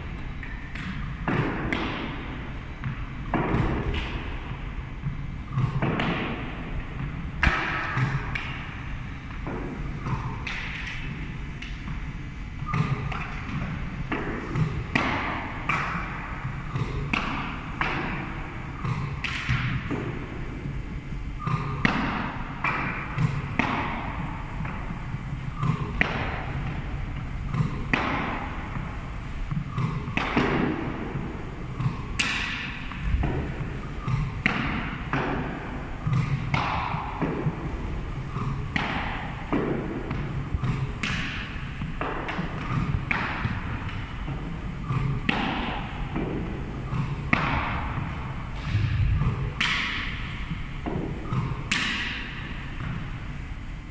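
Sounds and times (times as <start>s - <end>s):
low steady hum: 0.0s - 53.9s
balls thudding on pads and floor: 0.4s - 20.8s, 21.4s - 53.2s.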